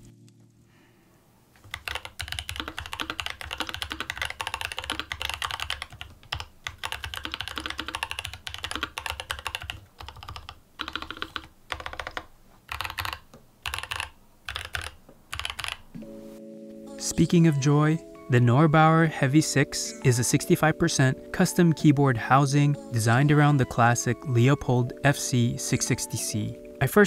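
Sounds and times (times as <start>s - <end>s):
mechanical keyboard typing: 1.6s - 15.9s.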